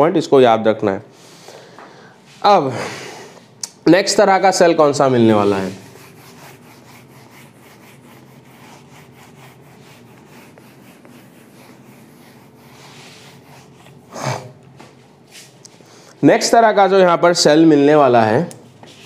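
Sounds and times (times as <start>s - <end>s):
duster rubbing on whiteboard: 5.1s - 15.6s.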